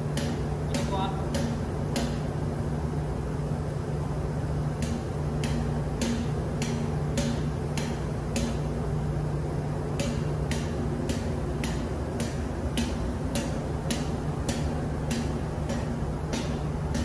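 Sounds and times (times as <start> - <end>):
machinery humming: 0.0 - 17.0
sharp regular ticking: 4.7 - 17.0.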